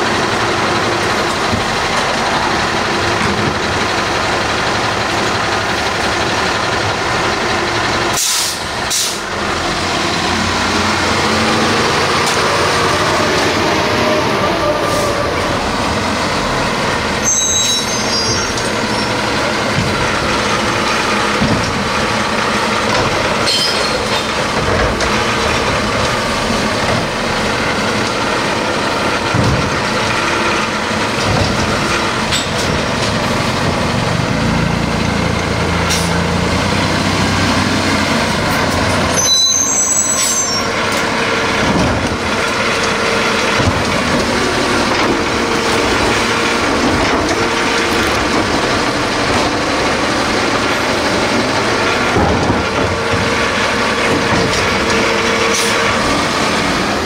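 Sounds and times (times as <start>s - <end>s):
truck diesel engine running: 0.0s - 57.0s
brake squeals: 16.9s - 21.3s, 21.9s - 26.4s, 35.6s - 48.9s.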